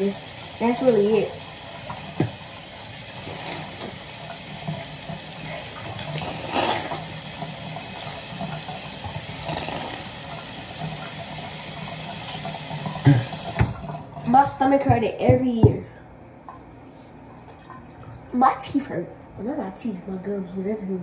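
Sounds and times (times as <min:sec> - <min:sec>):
faucet water pouring into sink: 0:00.0 - 0:14.6.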